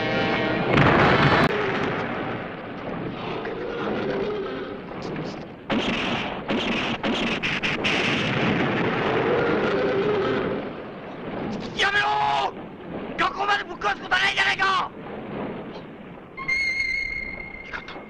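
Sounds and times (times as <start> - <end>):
explosions: 0.0 - 18.0
ray gun firing: 5.7 - 9.0.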